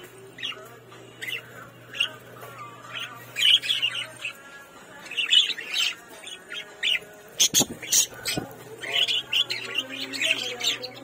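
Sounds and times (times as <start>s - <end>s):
budgerigars chirping: 0.4s - 11.0s.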